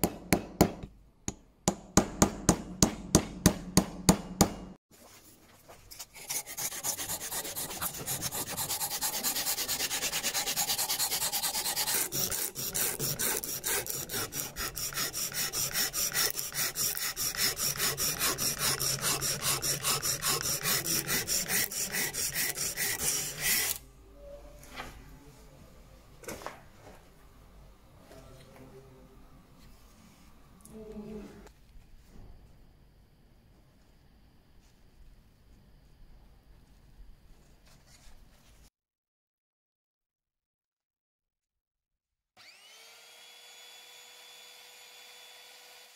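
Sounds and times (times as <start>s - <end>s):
sanding strip rasping on wood: 6.0s - 23.8s.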